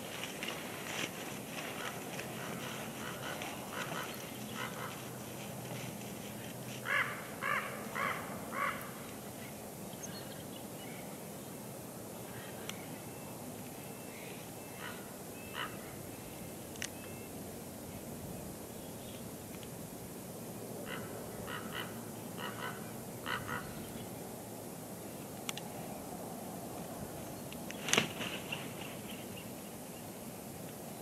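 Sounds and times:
bird calling: 1.6 - 5.2, 6.8 - 9.1, 13.9 - 16.3, 20.8 - 24.1.

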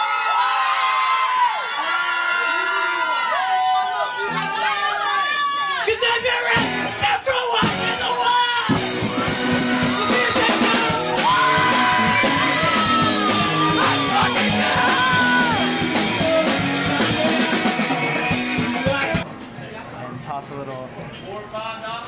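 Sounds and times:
live rock band playing: 6.5 - 19.2
drum kit: 6.5 - 19.3
electric guitar: 8.7 - 19.2
man singing: 9.9 - 19.2.

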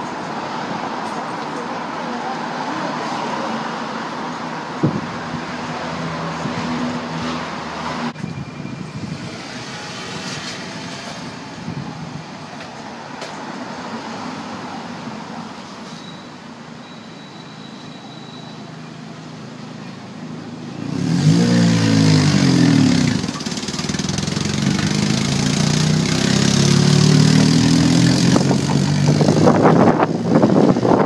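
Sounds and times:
car engine accelerating: 20.8 - 31.0
tram wheels clattering over rails: 23.1 - 26.4.

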